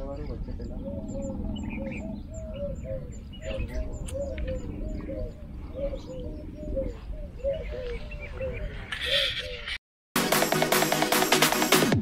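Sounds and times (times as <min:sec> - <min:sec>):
low rumble: 0:00.0 - 0:08.8
doves cooing: 0:00.0 - 0:09.8.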